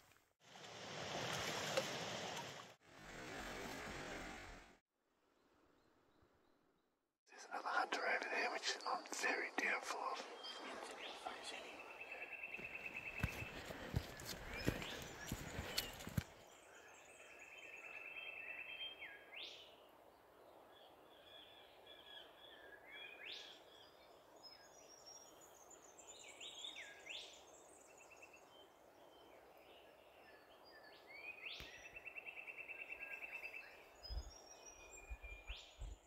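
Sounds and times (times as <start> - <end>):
bird calls: 7.4 - 19.7.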